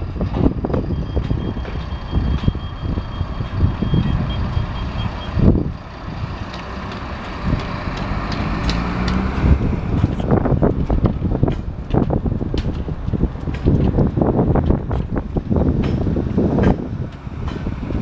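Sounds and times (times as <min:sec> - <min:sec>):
wind buffeting microphone: 0:00.0 - 0:18.0
faint high-pitched beeps: 0:00.9 - 0:05.4.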